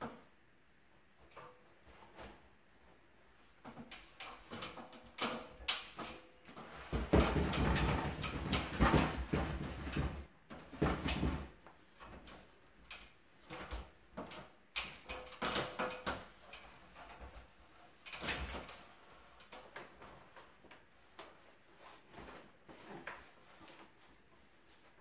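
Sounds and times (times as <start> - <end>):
wallpaper rustling and knocking: 1.1 - 25.0.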